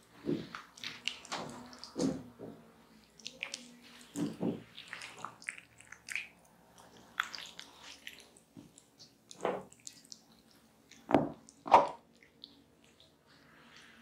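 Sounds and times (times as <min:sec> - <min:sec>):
wet squelching on skin: 0:03.2 - 0:10.6.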